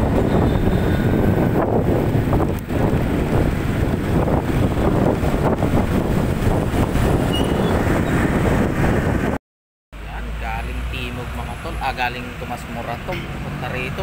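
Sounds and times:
wind rushing over microphone: 0:00.0 - 0:09.4
road and traffic noise: 0:00.0 - 0:14.0.

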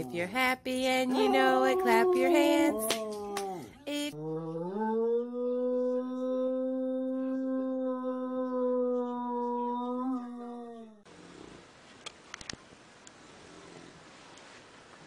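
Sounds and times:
dog howling: 0:01.1 - 0:03.7, 0:04.3 - 0:11.0.

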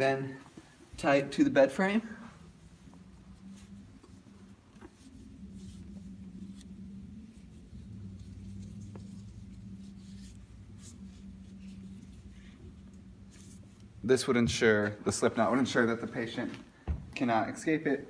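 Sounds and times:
low steady hum: 0:00.0 - 0:18.0
cloth strap rustling and scraping: 0:02.4 - 0:14.2.

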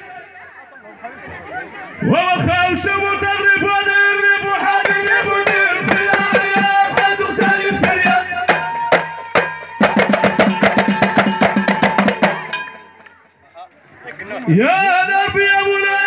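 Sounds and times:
man singing through loudspeakers: 0:02.0 - 0:09.4, 0:14.5 - 0:16.0
hand drums beating fast: 0:04.7 - 0:13.0.

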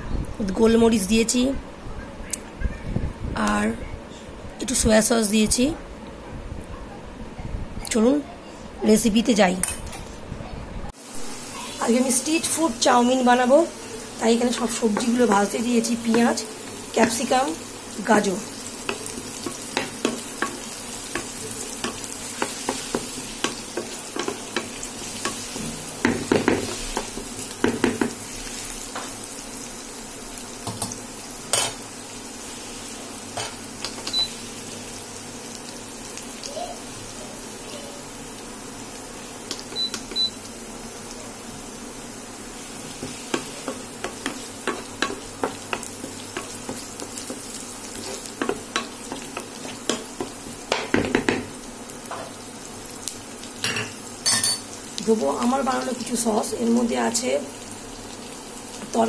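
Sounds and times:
vegetables sizzling in oil: 0:10.9 - 0:59.0
spatula scraping and knocking pan: 0:18.8 - 0:28.2, 0:42.8 - 0:52.3.

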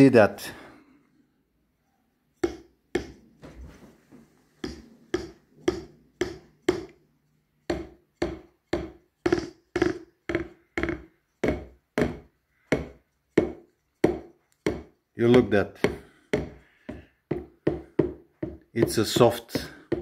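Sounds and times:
drumstick tapping electronic drum pads: 0:04.6 - 0:20.0.

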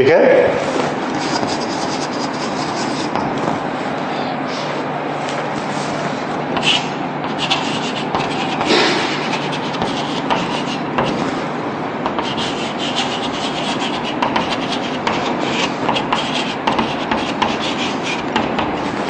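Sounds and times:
low background hum: 0:00.0 - 0:19.0
chalk scratching on blackboard: 0:01.1 - 0:03.4, 0:06.6 - 0:11.4, 0:12.1 - 0:19.0.

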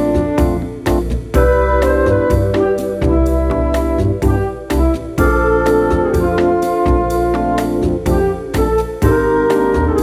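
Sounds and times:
music with steady beat: 0:00.0 - 0:10.0
sustained keyboard chords: 0:00.0 - 0:10.0.

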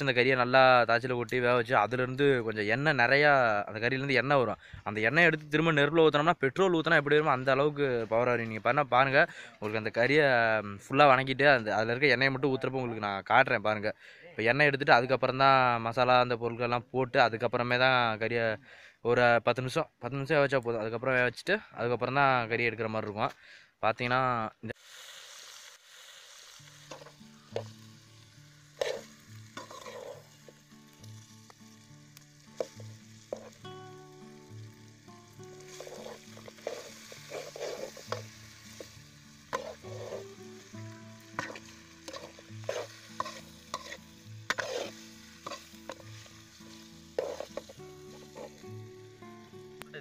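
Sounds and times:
pork sizzling in a pan: 0:00.0 - 0:01.0, 0:24.7 - 0:50.0
metal spoon scraping a pan: 0:25.3 - 0:27.9, 0:28.5 - 0:30.6, 0:32.6 - 0:33.6, 0:35.6 - 0:40.6, 0:41.4 - 0:48.6.

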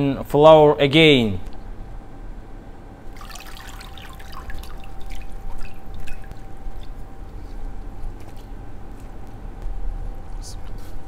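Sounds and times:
faint steady hum: 0:00.0 - 0:11.0
water dripping and splashing: 0:03.1 - 0:07.0.

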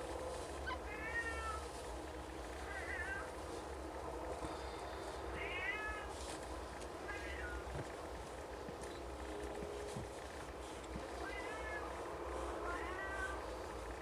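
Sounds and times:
cats mewing: 0:00.7 - 0:01.7, 0:02.6 - 0:03.5, 0:05.3 - 0:06.2, 0:07.0 - 0:07.9, 0:11.1 - 0:12.0, 0:12.6 - 0:13.8.

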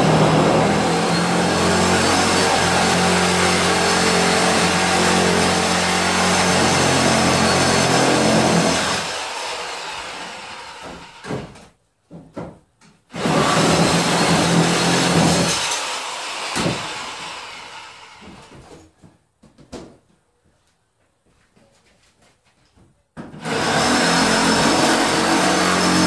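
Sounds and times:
reciprocating saw cutting: 0:00.0 - 0:11.2, 0:23.5 - 0:26.0.

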